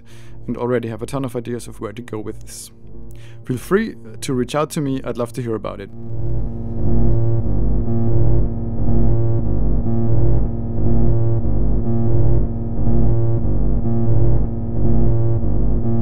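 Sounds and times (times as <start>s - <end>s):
synthesizer drone: 0.0s - 16.0s.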